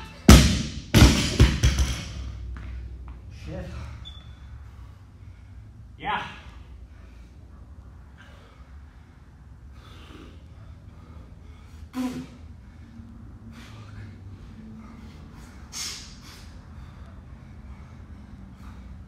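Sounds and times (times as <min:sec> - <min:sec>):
man breathing hard: 0:02.4 - 0:19.0.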